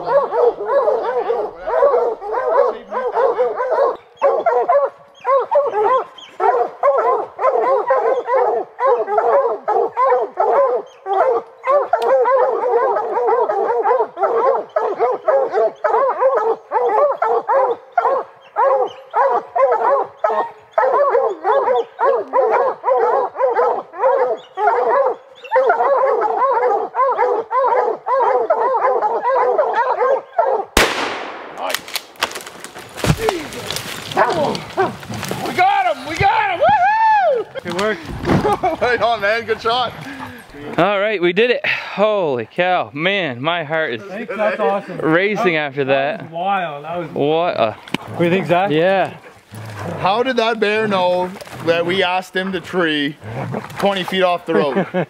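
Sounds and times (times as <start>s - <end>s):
dogs barking and baying: 0.0s - 30.8s, 32.3s - 36.8s, 37.4s - 40.9s, 44.1s - 55.0s
gunshot: 30.8s - 33.4s.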